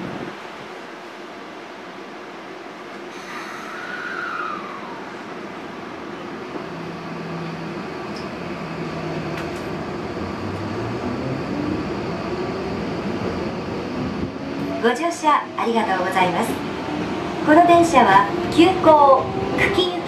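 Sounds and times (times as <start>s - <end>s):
train motor tones rising: 3.2s - 5.3s, 6.5s - 20.0s.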